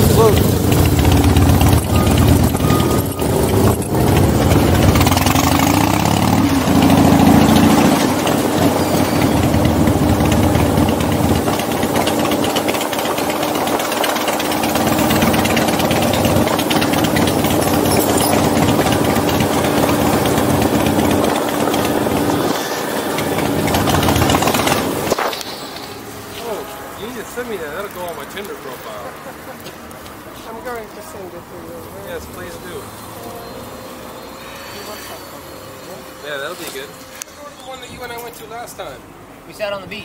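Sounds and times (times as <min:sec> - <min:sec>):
motorcycle engine running: 0:00.0 - 0:29.4.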